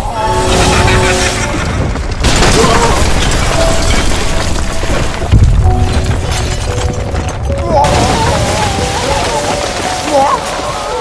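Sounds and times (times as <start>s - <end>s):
deep rumble of breaking rock: 1.4s - 10.8s
film music: 3.1s - 11.0s.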